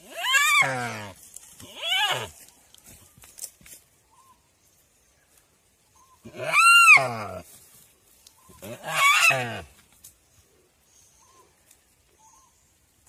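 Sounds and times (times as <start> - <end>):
deer bleating in distress: 0.0 - 2.4, 6.2 - 7.4, 8.6 - 9.8.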